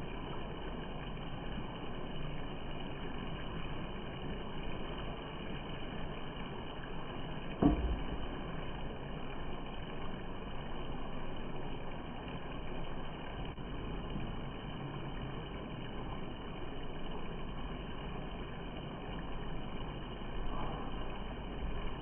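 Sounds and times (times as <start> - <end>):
steady background noise: 0.0 - 22.0.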